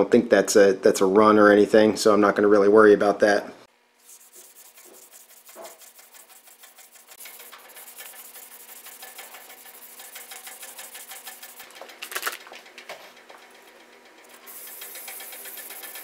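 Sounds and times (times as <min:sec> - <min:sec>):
sandpaper rubbing on metal: 0:04.0 - 0:12.2, 0:14.4 - 0:16.0.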